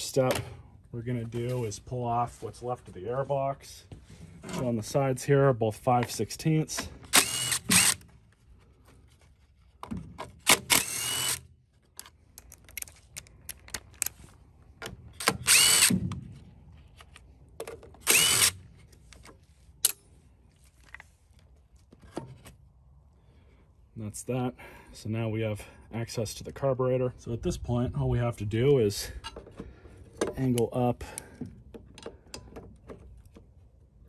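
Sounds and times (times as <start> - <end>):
cordless drill motor whine: 7.1 - 8.0, 10.7 - 11.5, 15.2 - 16.0, 18.0 - 18.6.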